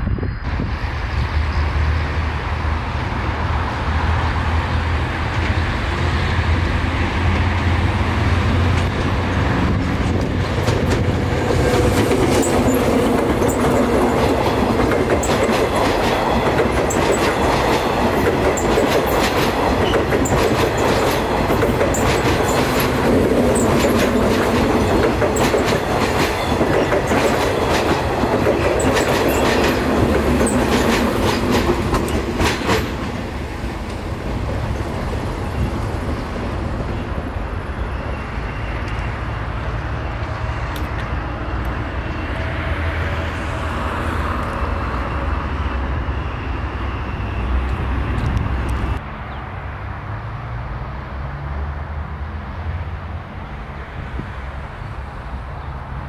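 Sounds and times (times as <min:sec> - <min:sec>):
train passing with low hum: 0:00.0 - 0:56.0
train rumble: 0:00.0 - 0:56.0
train wheels clicking over rail joints: 0:07.3 - 0:37.0.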